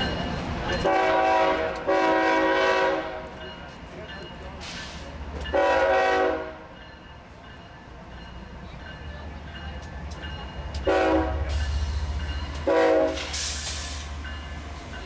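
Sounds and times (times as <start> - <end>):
diesel engines rumbling: 0.0 - 6.4
rail and wheel noise: 0.0 - 15.0
locomotive air horn blasts: 0.8 - 3.2, 5.5 - 6.6, 10.9 - 11.6, 12.6 - 13.5.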